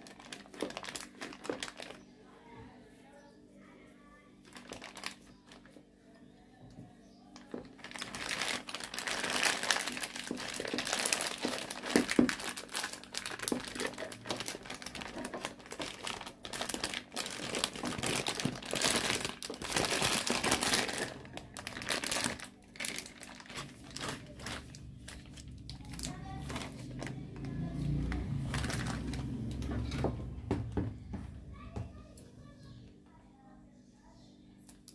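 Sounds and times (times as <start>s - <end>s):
plastic piping bag crinkling: 0.0s - 2.1s, 4.4s - 5.8s, 7.4s - 30.1s.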